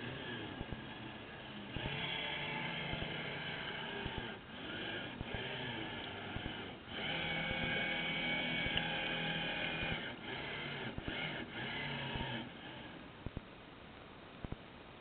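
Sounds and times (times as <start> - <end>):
electric motor whining: 0.0 - 13.0
small clicks and knocks: 8.6 - 10.0.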